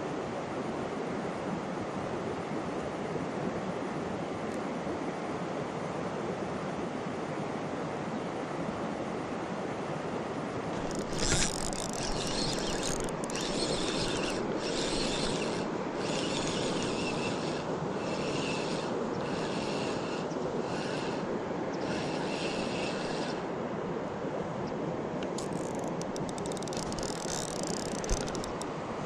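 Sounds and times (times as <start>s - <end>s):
fishing reel gears whirring: 10.7s - 23.5s, 25.3s - 28.7s.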